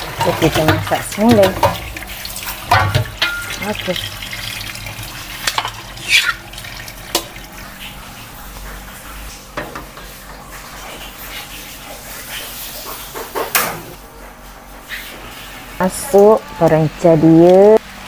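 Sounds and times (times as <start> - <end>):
tap water running into sink: 0.0 - 13.9
metal knocks of cookware: 2.7 - 3.6.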